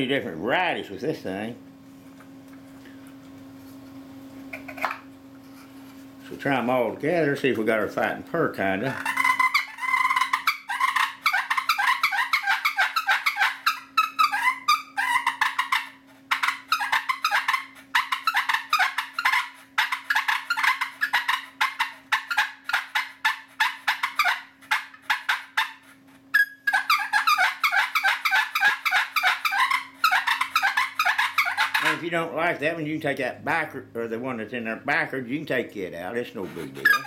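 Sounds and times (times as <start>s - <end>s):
turkey call rasping purrs: 8.9s - 32.1s.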